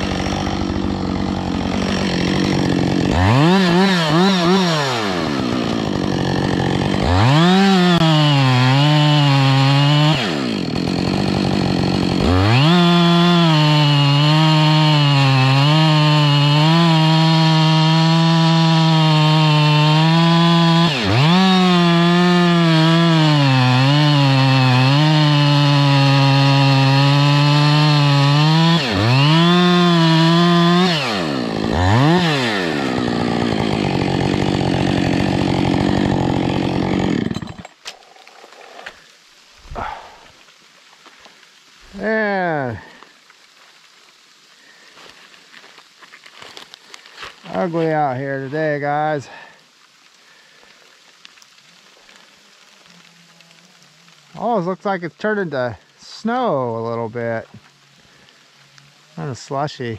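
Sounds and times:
chainsaw cutting log: 0:00.0 - 0:40.3, 0:45.6 - 0:49.6.

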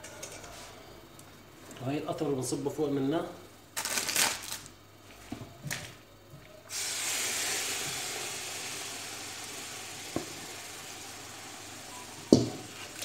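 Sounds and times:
loud sizzle: 0:06.7 - 0:13.0.

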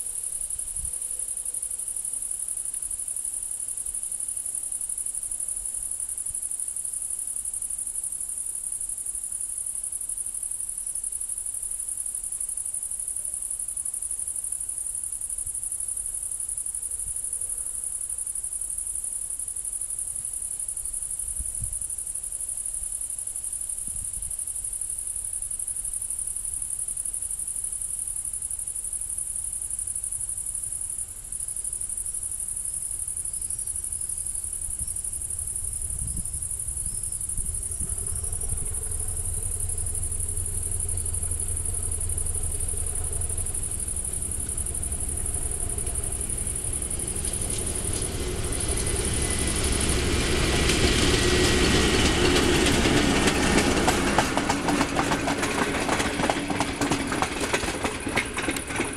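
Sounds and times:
crickets chirring: 0:00.0 - 0:58.9
low rumble: 0:34.2 - 0:54.2.

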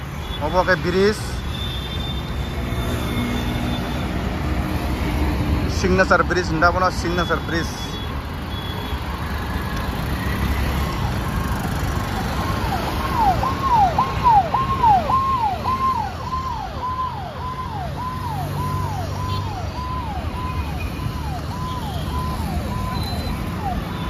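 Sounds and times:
road traffic: 0:00.0 - 0:24.0
vehicle siren sweeping: 0:06.7 - 0:24.0.

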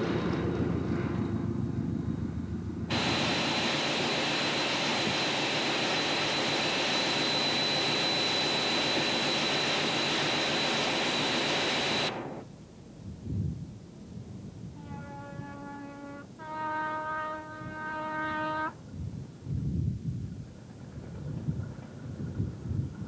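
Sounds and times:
train running noise: 0:00.0 - 0:12.6
high whine: 0:02.9 - 0:12.6.

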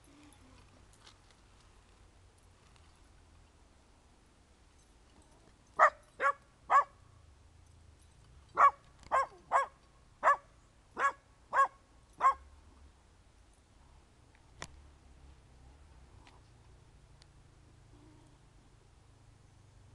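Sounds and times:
puppy barking: 0:05.8 - 0:07.0, 0:08.6 - 0:12.4.

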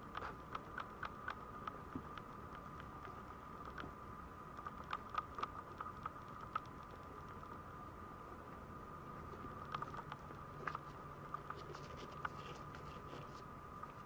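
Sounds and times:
faint high hum: 0:00.0 - 0:14.0.

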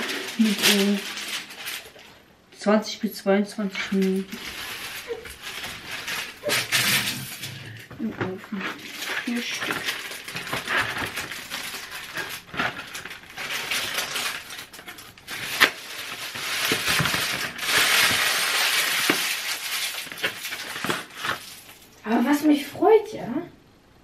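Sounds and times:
plastic wrap crinkling: 0:00.0 - 0:02.4, 0:03.6 - 0:22.6
cardboard box being torn open: 0:08.6 - 0:21.6.

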